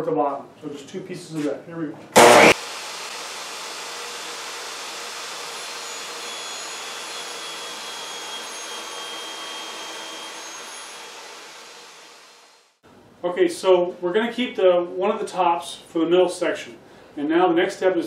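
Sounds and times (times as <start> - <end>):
table saw whine: 2.2 - 12.8.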